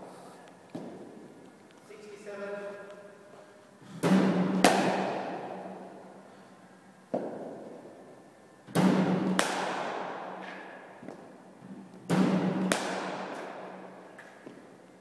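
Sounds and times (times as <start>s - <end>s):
cricket ball cracks echoing: 4.0s - 5.8s, 7.1s - 7.8s, 8.7s - 11.4s, 12.0s - 14.7s.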